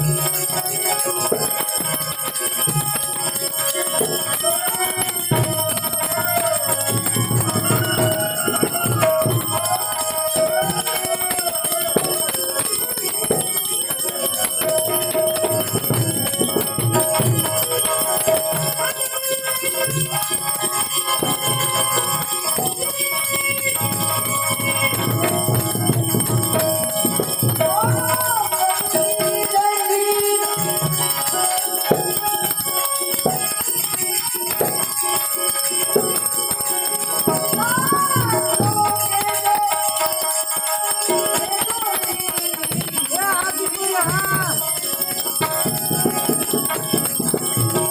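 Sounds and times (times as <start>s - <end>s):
harmonium: 0.0s - 47.9s
small bells ringing: 0.0s - 47.9s
young man singing: 0.0s - 47.9s.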